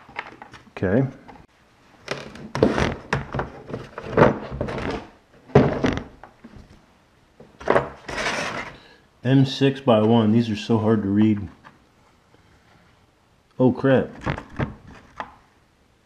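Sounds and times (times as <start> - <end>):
plastic tool case handled: 2.1 - 6.4.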